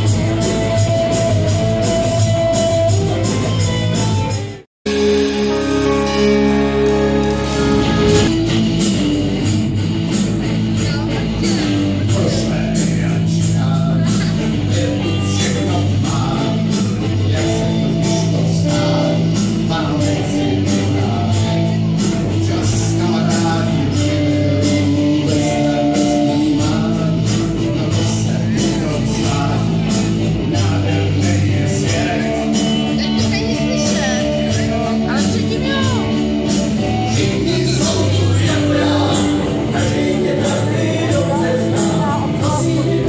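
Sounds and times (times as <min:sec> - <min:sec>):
live rock band playing: 0:00.0 - 0:43.0
person singing: 0:10.7 - 0:43.0.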